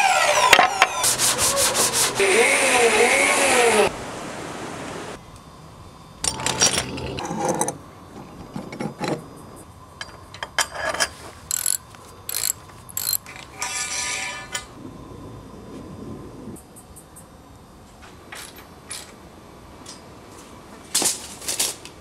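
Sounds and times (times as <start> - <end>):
ratcheting rattle: 11.5 - 13.3.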